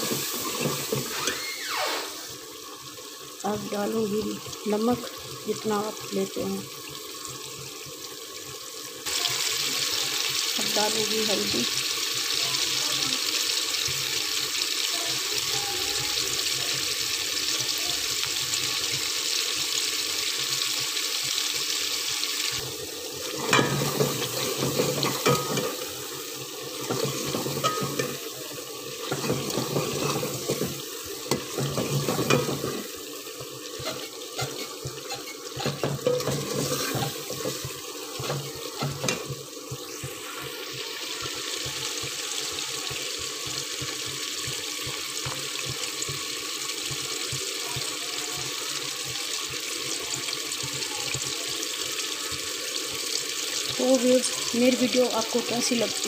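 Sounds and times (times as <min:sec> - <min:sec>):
food sizzling in a pot: 0:00.0 - 0:56.0
metal ladle scraping pot: 0:23.4 - 0:25.8, 0:26.8 - 0:28.3, 0:29.0 - 0:33.0, 0:33.7 - 0:39.3.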